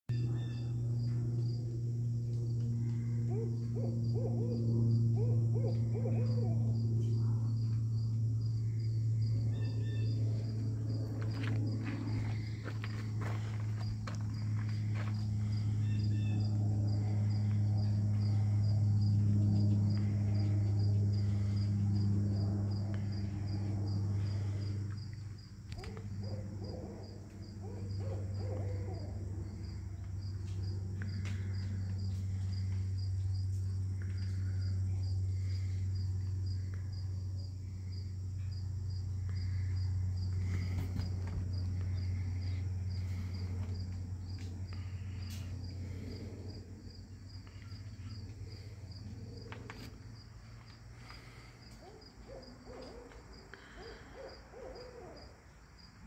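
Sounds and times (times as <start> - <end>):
pulsing insect chorus: 0.1 - 56.0
steady low hum: 0.1 - 56.0
owl hooting: 2.9 - 6.8, 9.5 - 10.2, 15.5 - 16.6, 25.8 - 29.7, 51.8 - 55.4.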